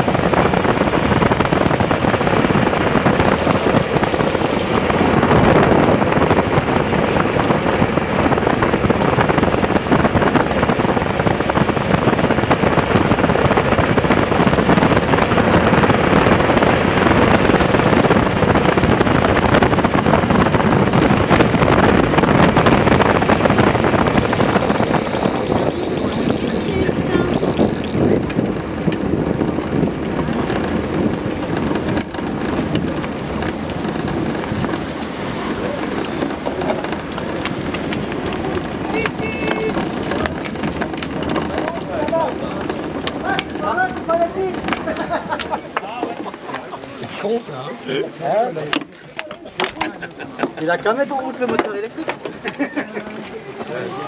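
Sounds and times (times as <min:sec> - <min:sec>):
wheels rumbling and rattling on road: 0:00.0 - 0:54.0
wind buffeting microphone: 0:00.0 - 0:54.0.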